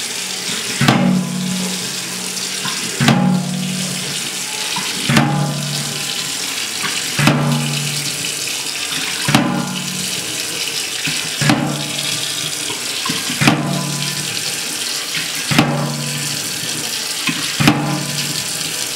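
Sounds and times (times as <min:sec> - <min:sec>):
water gushing against sink: 0:00.0 - 0:18.9
tap running into metal tray: 0:00.5 - 0:02.0, 0:02.6 - 0:08.3, 0:09.0 - 0:10.4, 0:11.0 - 0:14.5, 0:15.2 - 0:18.8.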